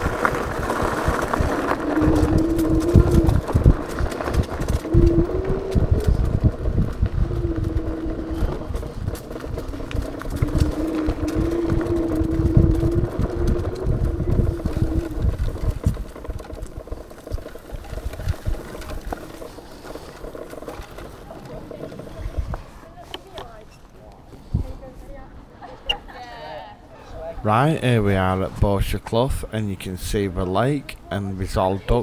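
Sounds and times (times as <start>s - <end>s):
rumble and knocks on bumpy track: 0.0s - 22.7s
electric scooter motor whining: 0.0s - 23.7s.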